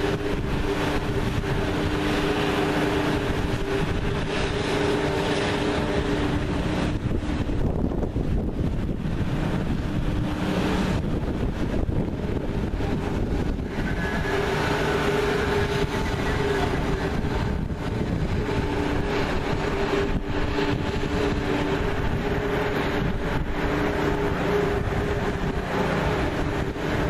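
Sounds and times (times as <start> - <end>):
fire engine pump drone: 0.0 - 27.0
wind rumbling on microphone: 0.0 - 27.0.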